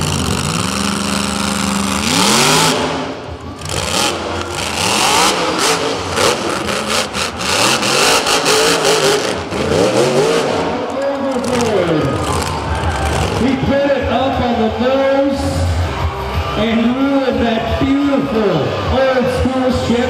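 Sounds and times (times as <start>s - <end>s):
truck engine revving: 0.0s - 13.7s.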